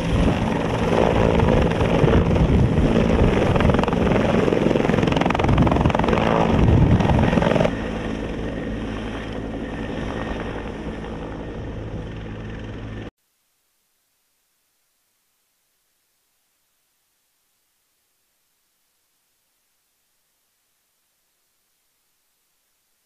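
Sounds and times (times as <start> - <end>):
helicopter engine and rotor: 0.0 - 13.1.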